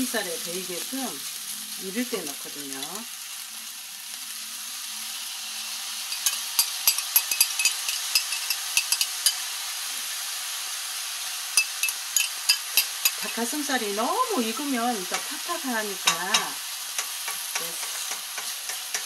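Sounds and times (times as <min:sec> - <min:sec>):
stir-fry sizzling in pan: 0:00.0 - 0:19.0
spatula scraping and clicking on pan: 0:06.1 - 0:09.5, 0:11.6 - 0:13.4, 0:16.0 - 0:19.0.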